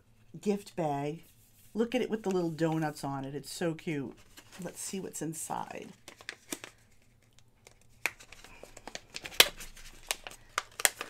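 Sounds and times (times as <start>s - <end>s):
plastic bag crinkling: 6.0s - 11.0s.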